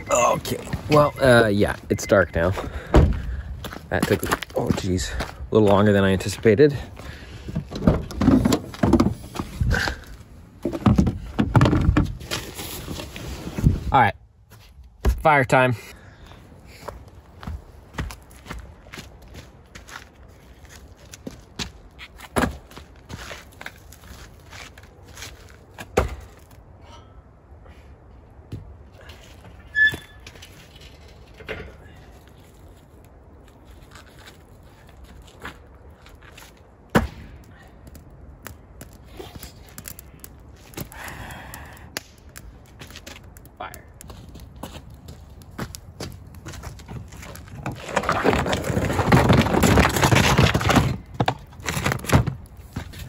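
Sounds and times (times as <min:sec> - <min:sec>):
firewood knocks and clunks: 0:02.5 - 0:06.4, 0:07.0 - 0:13.8, 0:14.6 - 0:15.4, 0:21.0 - 0:26.6, 0:35.1 - 0:53.0
knocks and thumps: 0:07.5 - 0:09.5, 0:10.6 - 0:12.2.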